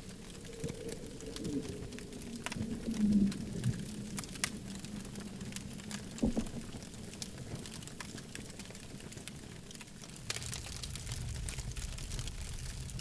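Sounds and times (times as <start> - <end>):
campfire crackling and popping: 0.0 - 13.0
low fire rumble: 0.0 - 13.0.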